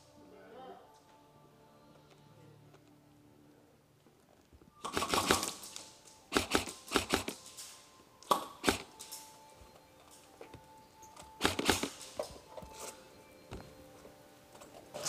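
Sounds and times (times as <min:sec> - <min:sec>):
airsoft gun bursts: 0:04.8 - 0:07.6, 0:08.3 - 0:09.0, 0:11.4 - 0:12.1.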